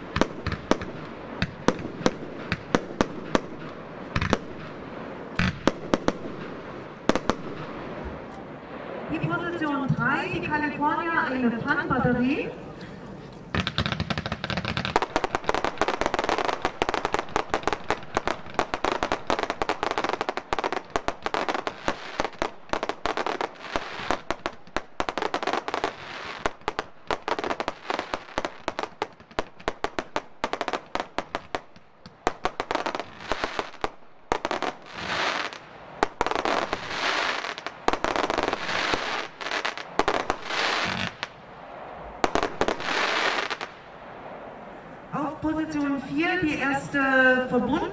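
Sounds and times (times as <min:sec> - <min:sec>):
firework shots with crackling bursts: 0:00.0 - 0:47.9
firework pops and crackle: 0:00.1 - 0:04.8, 0:13.5 - 0:41.4.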